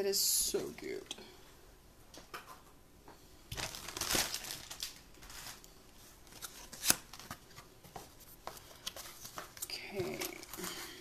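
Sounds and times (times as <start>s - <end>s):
packaging crinkling and rustling: 3.5s - 7.7s.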